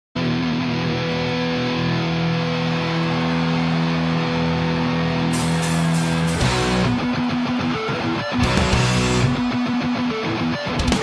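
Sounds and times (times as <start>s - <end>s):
distorted electric guitar chord: 5.3s - 11.0s.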